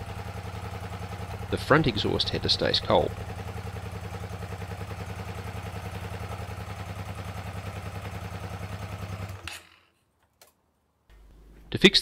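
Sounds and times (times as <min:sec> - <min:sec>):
motorcycle engine idling: 0:00.0 - 0:09.5.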